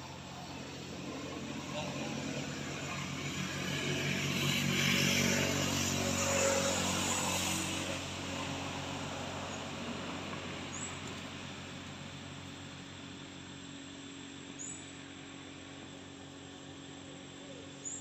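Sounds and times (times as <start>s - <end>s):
vehicle driving past: 0.0s - 12.3s.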